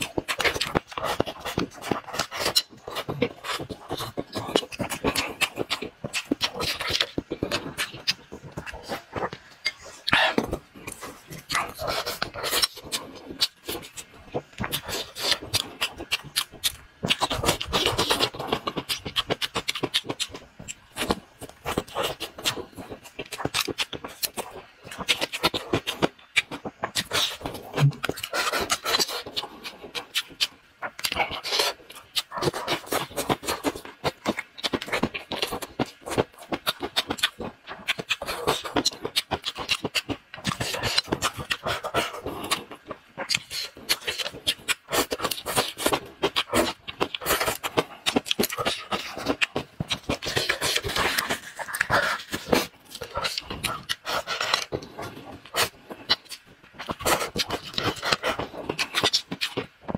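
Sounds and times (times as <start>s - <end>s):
close-miked chewing: 0.0s - 59.9s.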